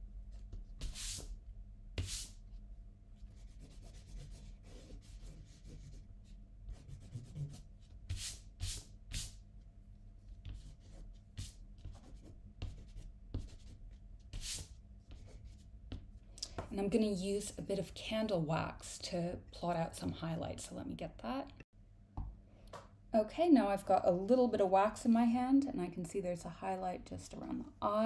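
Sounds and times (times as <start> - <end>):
eraser rubbing on paper: 2.0 - 2.4, 3.3 - 6.0, 6.7 - 9.4, 10.4 - 15.7.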